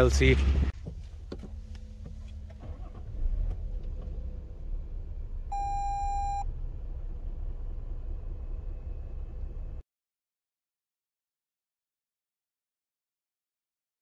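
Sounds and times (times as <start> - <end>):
steady low rumble: 0.0 - 9.8
electronic beep: 5.5 - 6.4.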